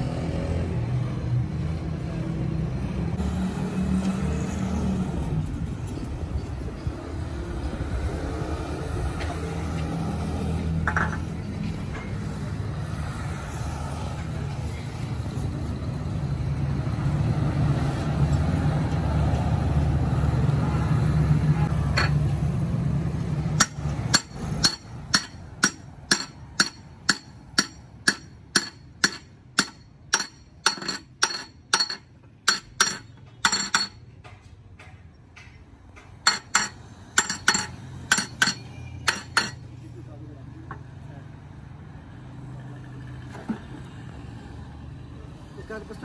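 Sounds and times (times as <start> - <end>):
hammer tapping metal: 23.6 - 39.7.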